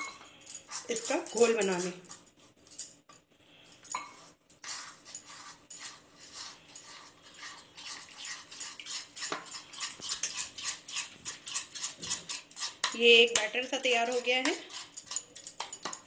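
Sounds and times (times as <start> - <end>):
fingers swishing wet batter: 4.0 - 16.0.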